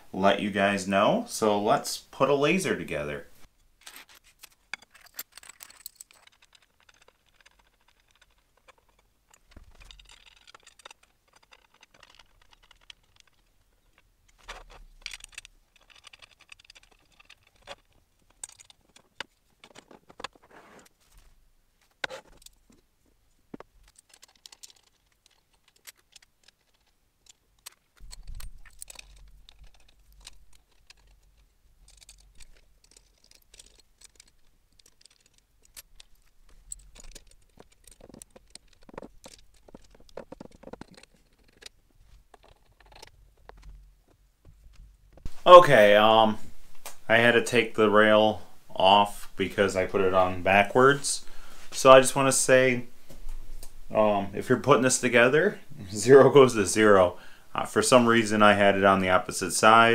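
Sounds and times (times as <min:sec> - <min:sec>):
small metal parts rattling: 0:03.6 - 0:45.3.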